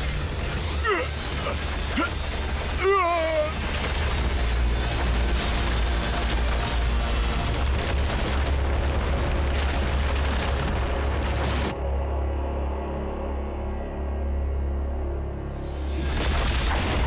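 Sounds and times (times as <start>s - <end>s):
rocks and debris crashing: 0.0s - 11.8s, 15.9s - 17.0s.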